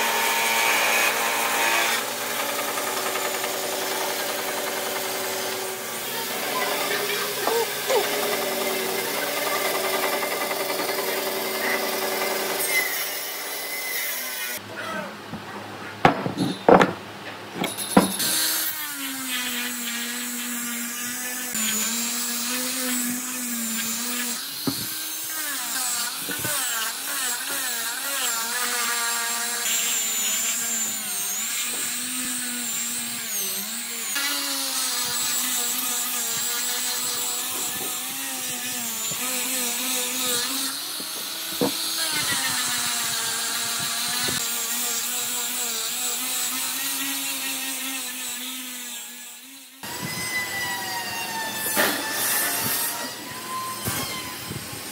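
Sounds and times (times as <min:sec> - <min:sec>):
angle grinder sanding wood: 0:00.0 - 0:14.6, 0:17.6 - 0:54.9
wooden knocks on bench: 0:16.0 - 0:17.0, 0:17.6 - 0:18.2.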